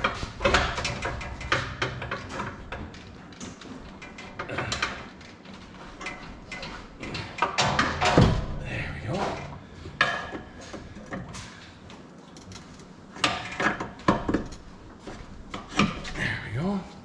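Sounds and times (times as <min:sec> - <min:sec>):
hand tools knocking and clicking: 0:00.0 - 0:08.6, 0:13.2 - 0:16.2.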